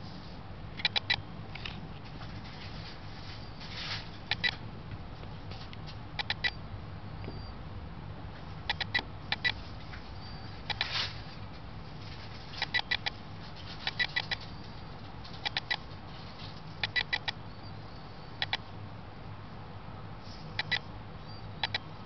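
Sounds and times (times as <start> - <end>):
low steady hum: 0.0 - 22.0
mouse squeaking: 0.8 - 1.3, 3.3 - 4.6, 6.2 - 6.6, 8.6 - 11.3, 12.1 - 18.7, 20.5 - 21.9.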